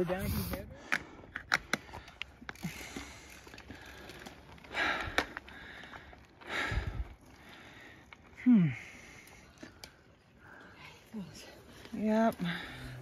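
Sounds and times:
person breathing hard: 0.8s - 10.9s.

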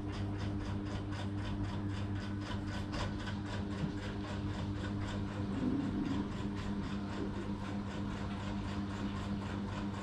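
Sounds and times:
machine hum: 0.0s - 10.0s.

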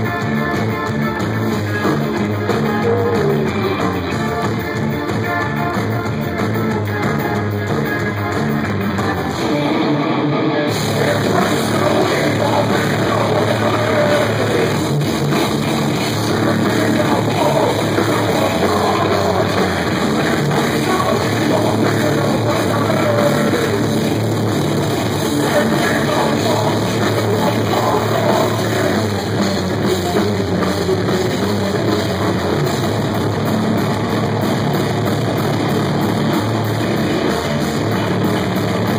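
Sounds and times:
distorted electric guitar: 0.0s - 38.9s
drum kit with cymbals: 10.7s - 38.9s.

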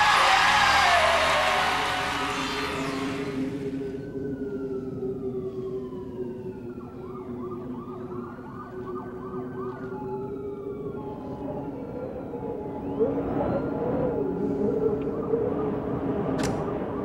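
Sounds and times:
music: 0.0s - 5.2s
low city drone: 0.0s - 17.0s
sirens wailing: 0.0s - 17.0s.

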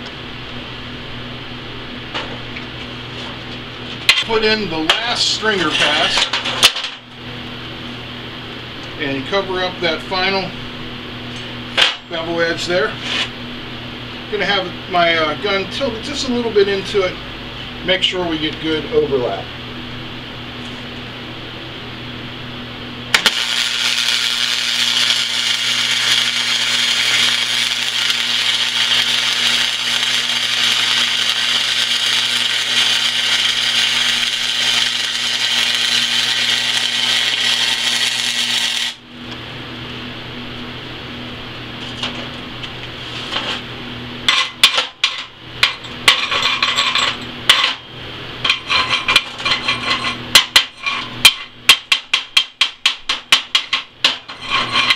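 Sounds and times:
welding machine hum: 0.0s - 9.2s, 21.4s - 54.9s
welding arc crackling: 23.1s - 39.1s.

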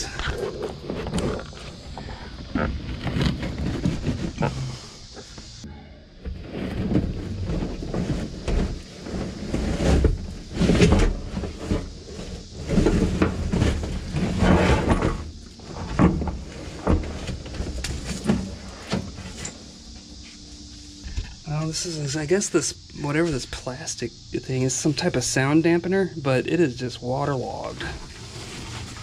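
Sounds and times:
floor covering being pulled up: 28.1s - 29.0s.

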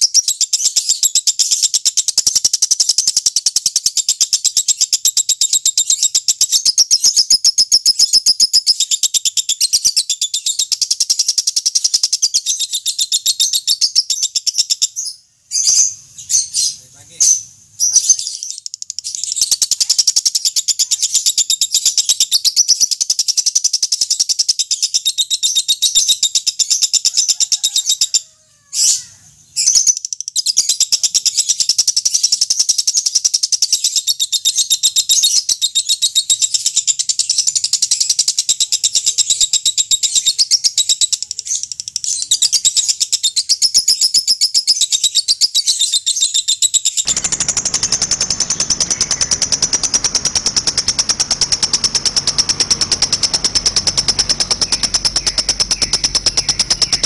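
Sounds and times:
bird chattering trill: 15.6s - 28.2s, 28.8s - 57.0s
rough low noise: 47.1s - 57.0s.

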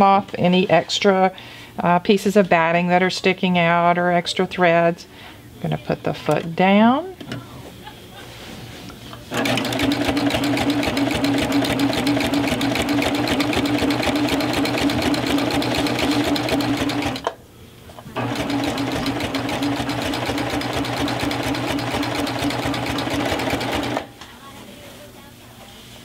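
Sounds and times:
serger stitching rattle: 9.3s - 17.3s, 18.2s - 24.0s.

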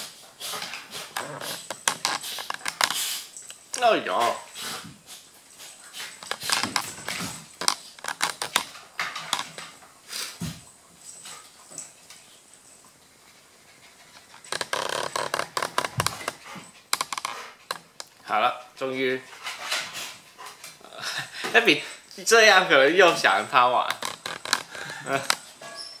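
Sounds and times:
dogs scuffling: 0.0s - 26.0s
claws clicking on wooden floor: 1.0s - 3.8s, 6.2s - 9.7s, 14.3s - 18.2s, 23.9s - 25.5s.

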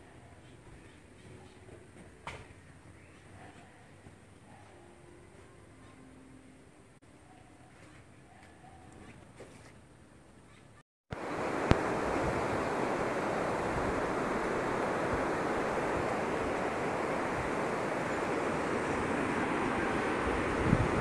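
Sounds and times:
river rapids rushing: 11.2s - 21.0s.

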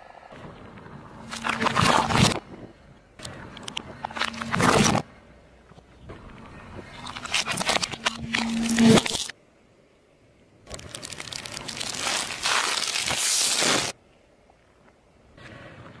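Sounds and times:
plastic bag crinkling under tyre: 7.0s - 9.3s, 10.7s - 14.0s
car tyre crushing hard plastic: 10.7s - 14.0s.

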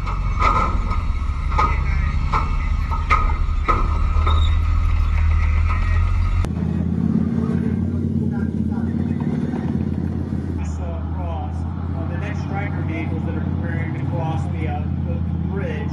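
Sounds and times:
metal clanks of tracks on bridge: 0.0s - 6.2s
tank diesel engine running: 0.0s - 15.9s.

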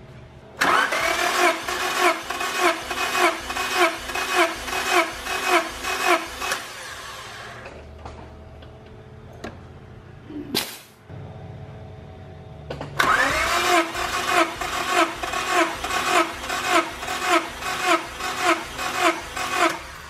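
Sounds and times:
engine cranking on starter: 0.6s - 7.6s, 13.0s - 20.0s.

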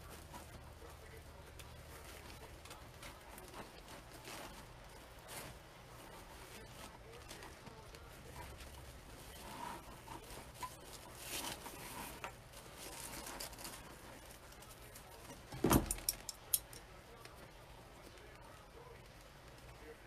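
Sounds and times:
ribbon rustling: 0.0s - 20.0s
thump: 15.6s - 16.0s.

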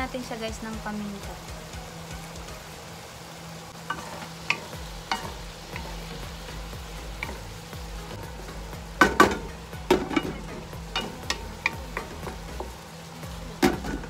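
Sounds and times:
food sizzling in a wok: 0.0s - 14.0s
spatula stirring food: 3.8s - 14.0s
spatula knocking on pan: 8.3s - 12.8s.

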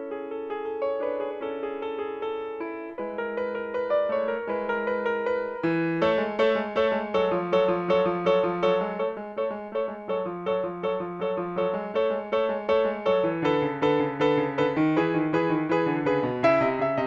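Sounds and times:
grand piano repeated notes: 0.0s - 17.0s.

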